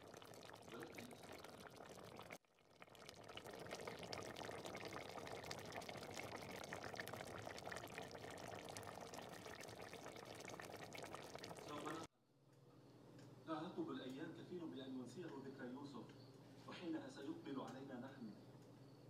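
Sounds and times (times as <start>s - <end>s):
stew bubbles popping: 0.0s - 12.1s.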